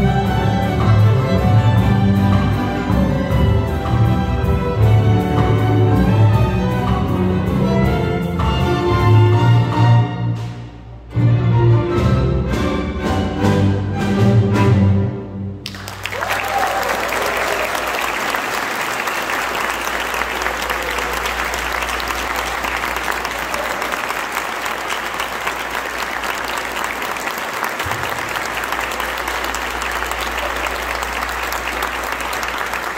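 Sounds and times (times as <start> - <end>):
audience applauding: 15.6 - 32.9.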